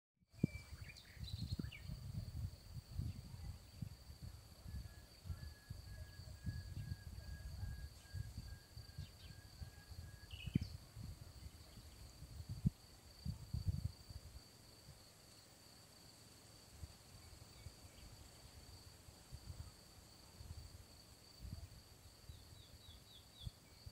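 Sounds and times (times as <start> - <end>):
small birds chirping: 0.4 - 2.0, 10.3 - 12.2
low rumbling on microphone: 0.4 - 14.3.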